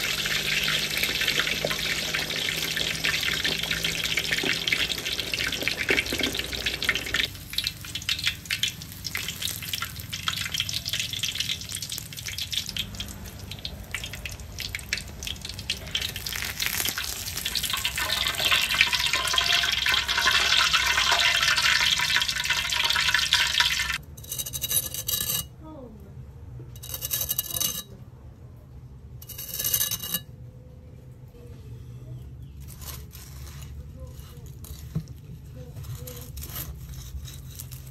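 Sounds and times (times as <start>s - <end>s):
pork sizzling in hot oil: 0.0s - 24.0s
short crackly bursts: 6.5s - 18.2s.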